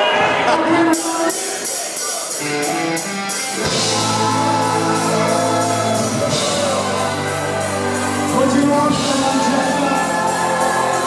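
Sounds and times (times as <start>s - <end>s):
bass guitar: 2.4s - 11.0s
electric guitar chords: 2.4s - 11.0s.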